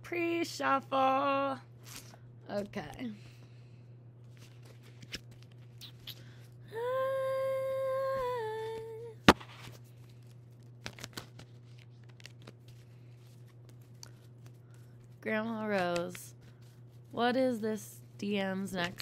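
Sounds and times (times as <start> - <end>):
low electrical hum: 0.0 - 19.0
woman humming: 6.6 - 9.2.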